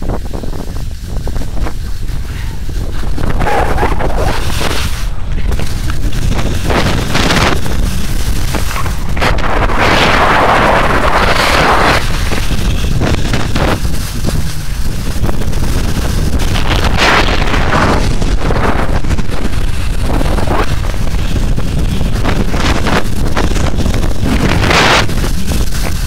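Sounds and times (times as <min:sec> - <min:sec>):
skis hissing through slushy snow: 0:00.0 - 0:26.0
wind buffeting microphone: 0:00.0 - 0:26.0.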